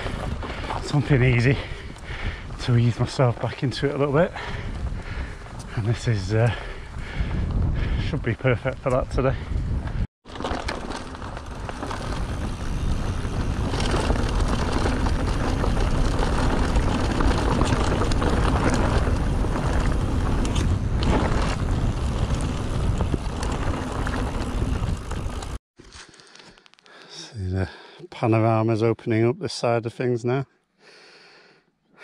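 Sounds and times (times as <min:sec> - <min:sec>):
wind on microphone: 0:00.0 - 0:10.1, 0:11.2 - 0:25.6
bike rattling clicks: 0:09.8 - 0:25.6.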